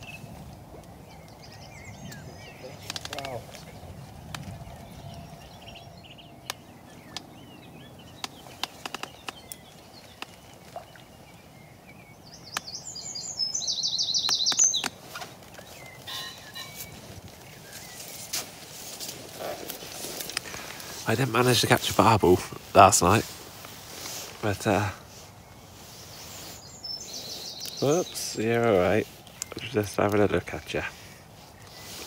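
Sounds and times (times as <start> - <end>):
small birds chirping: 0.0 - 32.0
songbird singing: 0.0 - 32.0
sharp clicks: 2.8 - 3.4, 8.2 - 10.4.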